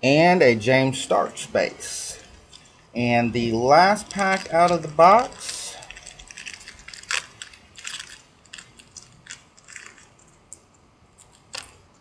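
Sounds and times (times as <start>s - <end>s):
card pack crinkling: 3.4s - 10.6s.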